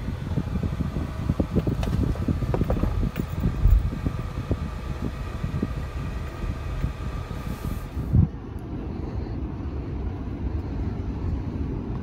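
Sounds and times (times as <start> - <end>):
car engine and road rumble: 0.0 - 12.0
car bumps and thumps: 1.5 - 4.0.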